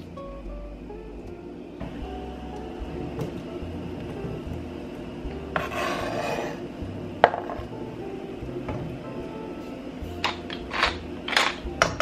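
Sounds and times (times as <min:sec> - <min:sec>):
knife scraping cutting board: 0:05.6 - 0:06.6.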